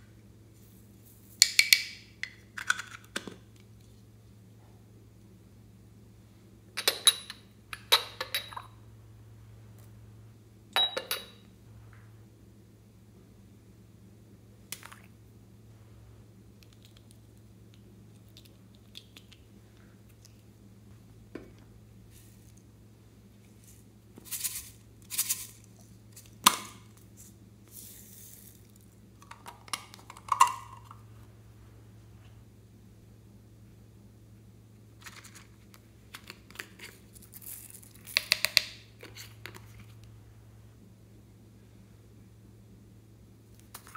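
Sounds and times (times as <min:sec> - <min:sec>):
ringing clink against glass bowl: 0:10.8 - 0:11.5
glitter pouring with soft hiss: 0:27.2 - 0:29.0.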